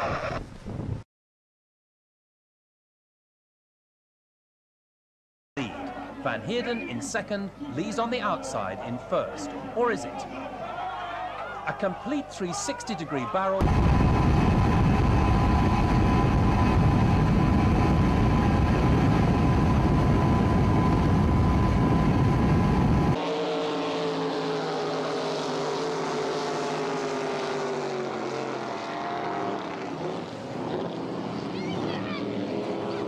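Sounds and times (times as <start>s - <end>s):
racing boat engines: 5.6s - 33.0s
boat running at speed: 13.6s - 33.0s.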